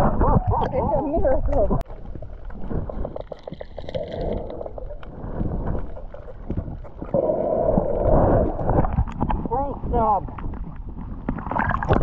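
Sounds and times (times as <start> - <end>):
muffled underwater wash: 0.0 - 12.0
underwater clicks and crackles: 0.0 - 12.0.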